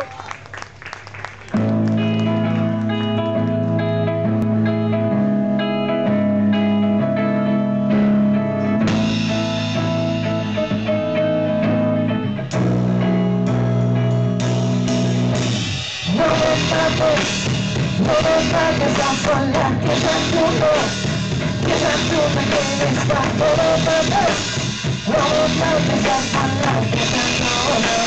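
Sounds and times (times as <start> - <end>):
electric guitar chords: 1.5 - 28.0
drum kit: 7.9 - 28.0.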